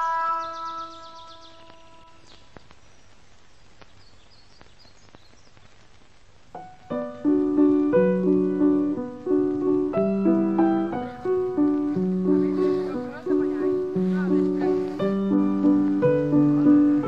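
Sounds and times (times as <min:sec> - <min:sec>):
keyboard melody: 0:00.0 - 0:02.6, 0:06.5 - 0:17.0
faint hiss: 0:00.0 - 0:17.0
soft ticks: 0:01.6 - 0:02.8.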